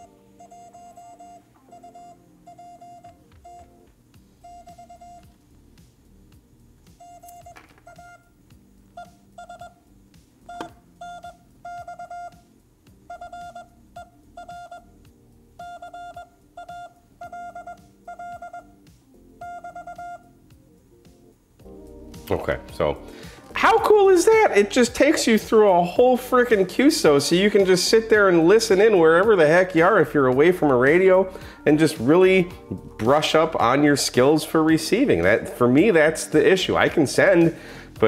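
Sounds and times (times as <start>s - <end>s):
morse code beeps: 0.0s - 5.4s, 6.9s - 8.3s, 8.9s - 9.8s, 10.4s - 15.0s, 15.6s - 20.4s
device being handled knocks: 7.5s - 7.9s.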